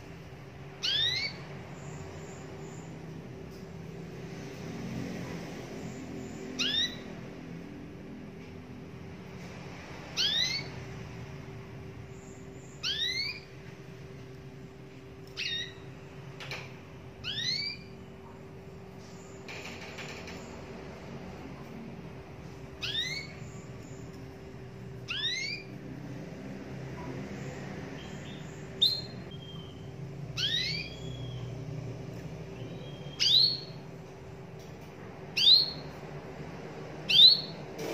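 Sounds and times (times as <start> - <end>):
canary whistling call notes: 0.8 - 1.4, 6.6 - 7.1, 10.2 - 10.7, 12.8 - 13.5, 15.4 - 15.9, 17.2 - 17.9, 22.8 - 23.4, 25.1 - 25.7, 28.8 - 29.8, 30.4 - 31.5, 32.6 - 33.8, 35.4 - 35.9, 37.1 - 37.6.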